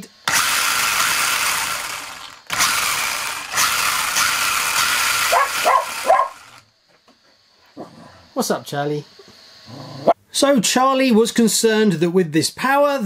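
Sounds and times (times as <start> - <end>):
electric motor whirring: 0.0 - 6.7
dog barking: 5.3 - 6.4.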